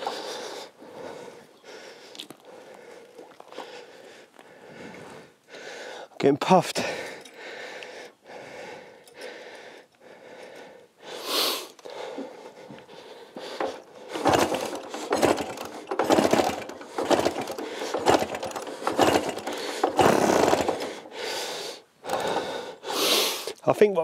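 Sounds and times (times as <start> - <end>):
motorcycle engine turning over: 13.4 - 22.7.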